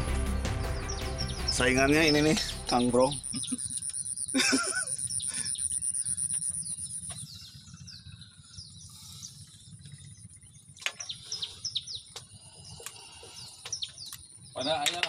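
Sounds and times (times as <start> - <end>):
low rumble: 0.0 - 3.8
small birds chirping: 0.0 - 15.0
high-pitched insect buzz: 2.9 - 7.3.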